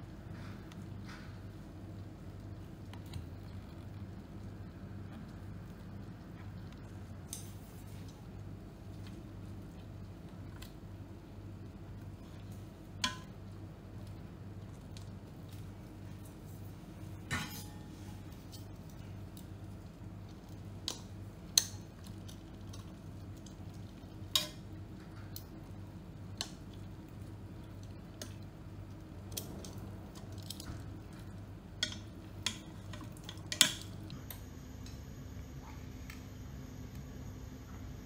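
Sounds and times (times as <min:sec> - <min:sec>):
low hum: 0:21.8 - 0:38.0.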